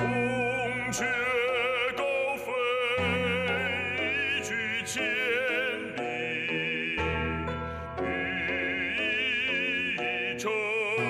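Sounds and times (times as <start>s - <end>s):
operatic singing with vibrato: 0.0s - 11.0s.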